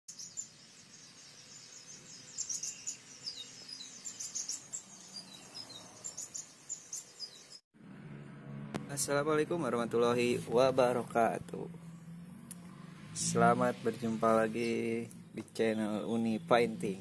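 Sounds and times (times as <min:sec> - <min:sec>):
small birds chirping: 0:00.1 - 0:07.6, 0:14.0 - 0:17.0.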